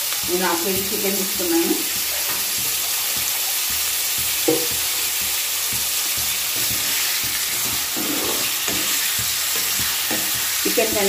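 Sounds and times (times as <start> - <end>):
chicken sizzling in hot oil: 0.0 - 11.0
metal spoon scraping pan: 6.1 - 11.0.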